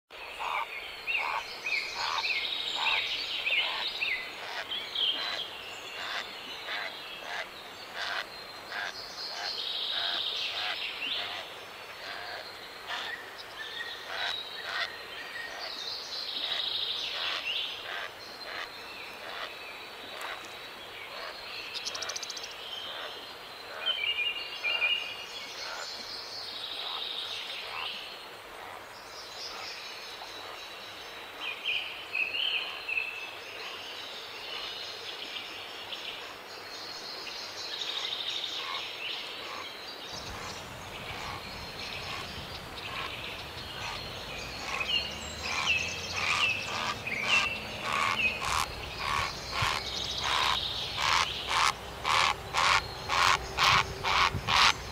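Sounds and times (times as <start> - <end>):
steady outdoor hiss: 0.1 - 54.9
birds chirping and calling: 0.2 - 13.2, 14.0 - 23.1, 39.4 - 54.9
repeated bird call: 40.2 - 54.9.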